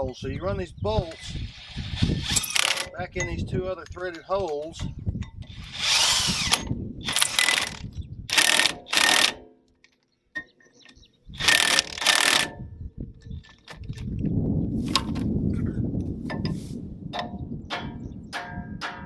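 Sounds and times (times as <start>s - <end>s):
cordless power driver running bolts: 1.0s - 3.0s, 4.1s - 9.4s, 11.4s - 12.6s.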